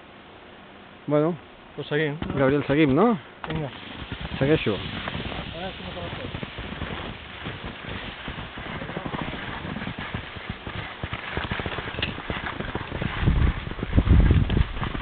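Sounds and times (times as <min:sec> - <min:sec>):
skis scraping over crusty snow: 0:02.3 - 0:15.0
low thumps and rumbles: 0:04.0 - 0:15.0.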